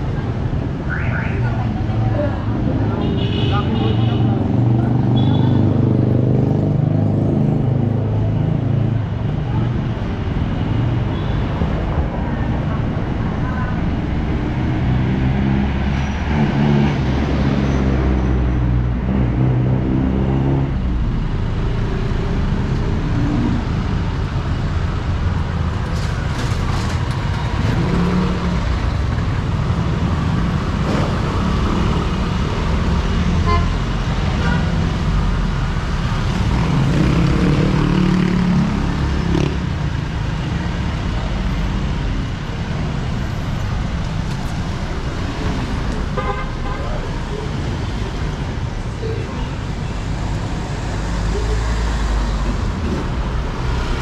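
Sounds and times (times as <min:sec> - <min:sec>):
vehicles passing: 0:00.0 - 0:54.0
diesel engines droning: 0:11.7 - 0:54.0.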